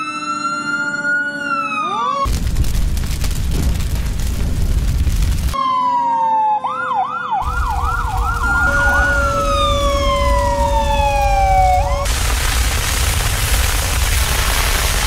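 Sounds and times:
electronic toy siren: 0.0 - 2.3, 5.6 - 12.1
steady hiss: 11.3 - 15.0.

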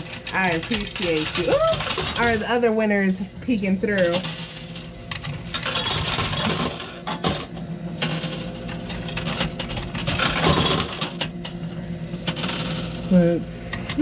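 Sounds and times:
coins clinking and clattering: 0.0 - 2.4, 3.6 - 11.3
machine low hum: 0.0 - 14.0.

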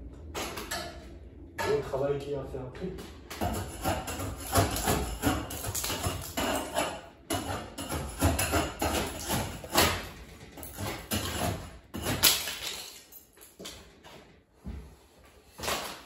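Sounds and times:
construction knocks and bangs: 3.0 - 14.0.

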